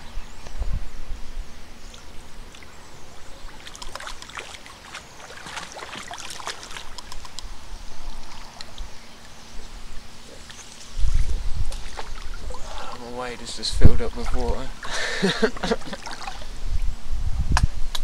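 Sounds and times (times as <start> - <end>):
fish thrashing and splashing water: 2.5 - 7.4, 10.5 - 13.0, 15.7 - 16.6.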